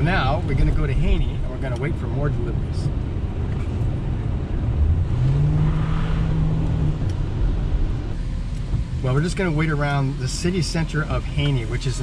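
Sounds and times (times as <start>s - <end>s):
car engine accelerating: 0.0s - 12.0s
road noise inside car: 0.0s - 12.0s.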